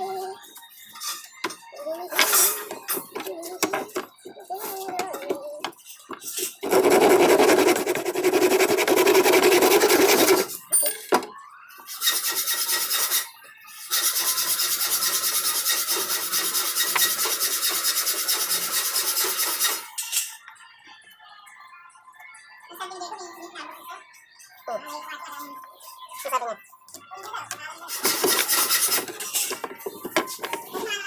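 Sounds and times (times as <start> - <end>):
hand saw cutting wood: 6.6 - 10.5.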